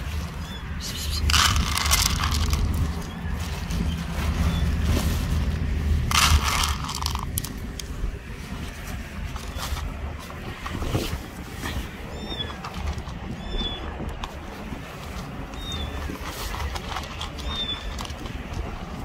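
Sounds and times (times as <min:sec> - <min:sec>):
low rumble: 0:00.0 - 0:19.0
kibble rattling on plastic lid: 0:01.2 - 0:03.7, 0:06.0 - 0:07.9, 0:12.2 - 0:13.3, 0:15.2 - 0:19.0.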